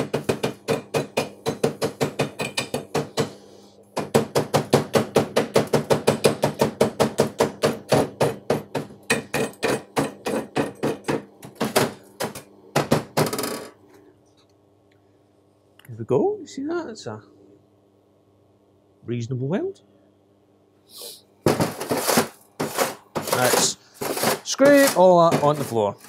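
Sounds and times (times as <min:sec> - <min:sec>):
chipping hammer tapping metal: 0:21.5 - 0:26.0.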